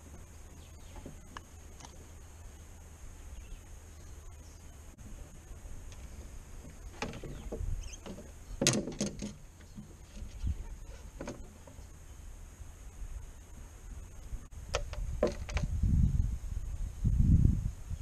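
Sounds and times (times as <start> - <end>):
low steady rumble: 0.0 - 8.6.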